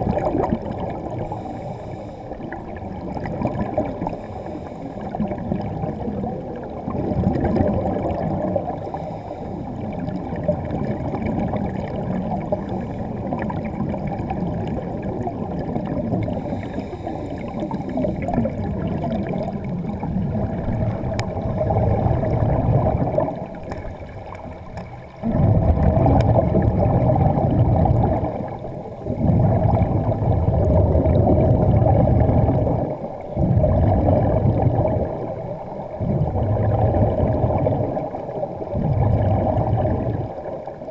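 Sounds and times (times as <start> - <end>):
air bubbles streaming underwater: 0.0 - 40.9.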